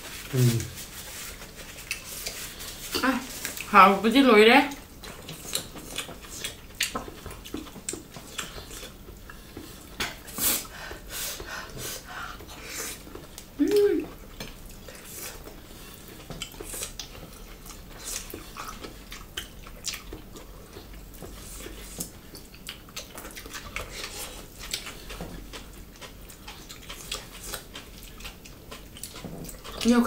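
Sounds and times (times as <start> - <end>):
chewing and lip smacking: 1.6 - 2.5, 4.7 - 10.3, 12.6 - 30.0.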